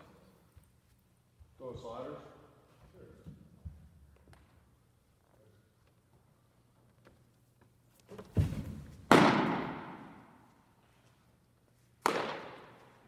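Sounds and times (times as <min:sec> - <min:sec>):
foot landing thud: 0:08.2 - 0:09.4
baseball popping into leather mitt: 0:12.0 - 0:12.8.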